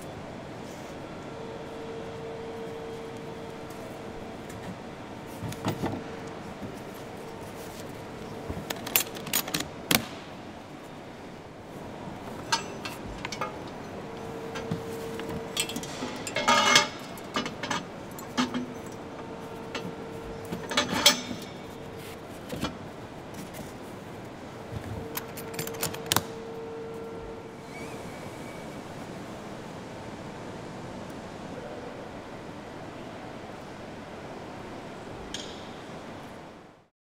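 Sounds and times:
faint steady hum: 0.0 - 36.9
metal parts clanking on metal and wood: 7.7 - 9.7, 12.2 - 22.8, 24.8 - 26.4.

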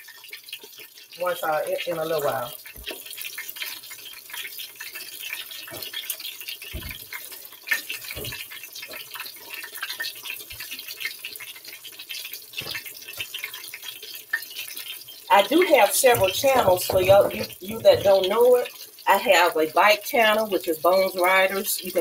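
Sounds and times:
fish sizzling in oil: 0.0 - 22.0
dull kitchen knocks: 6.7 - 7.1, 8.1 - 8.4, 15.6 - 18.3.

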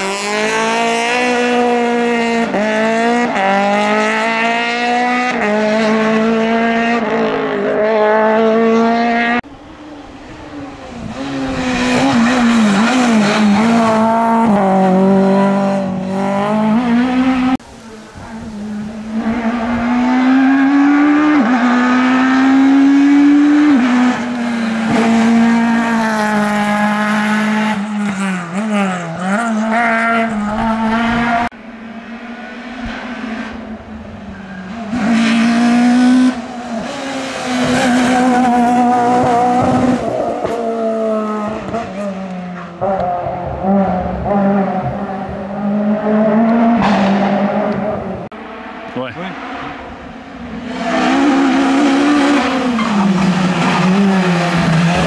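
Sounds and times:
rally car engines revving: 0.0 - 55.0.

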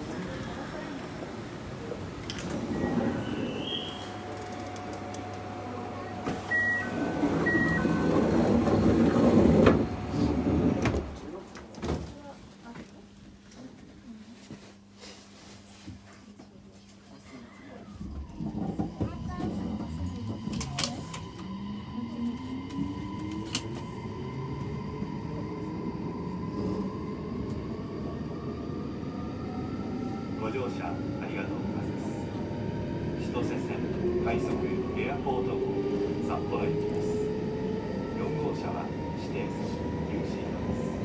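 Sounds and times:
electric train rumbling past: 0.0 - 11.5, 17.8 - 41.0
train inverter whine rising: 2.7 - 11.2.

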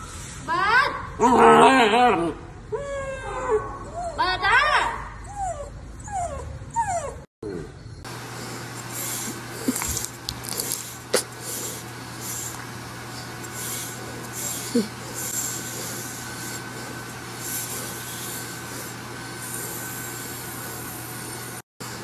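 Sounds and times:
brush rubbing dog fur: 8.2 - 21.2.

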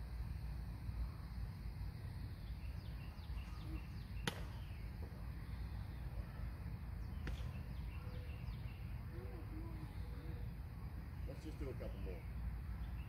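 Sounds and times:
faint high bird chirping: 2.2 - 13.0
sharp crack: 4.2 - 4.8, 7.1 - 7.6.

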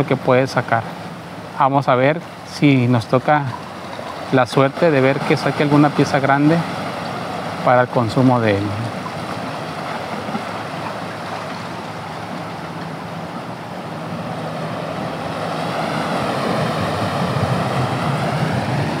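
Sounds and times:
surf breaking on rocks: 3.8 - 13.5.

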